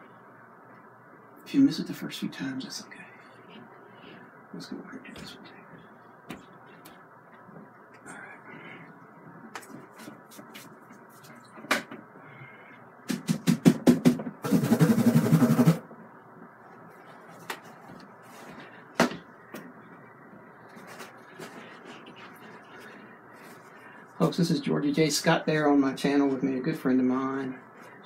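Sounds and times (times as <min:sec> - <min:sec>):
rapid rattling beat: 0:13.1 - 0:15.8.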